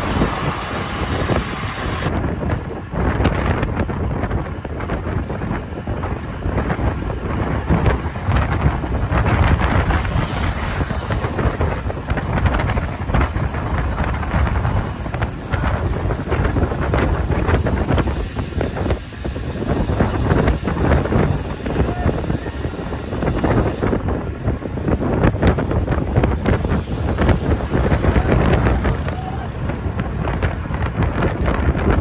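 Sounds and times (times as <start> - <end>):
road noise: 0.0 - 32.0
wind buffeting microphone: 0.0 - 32.0.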